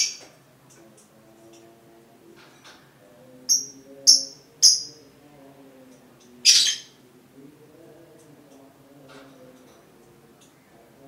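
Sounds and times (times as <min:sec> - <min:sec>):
bird chirping: 0:00.0 - 0:00.3, 0:03.5 - 0:05.1, 0:06.3 - 0:07.0.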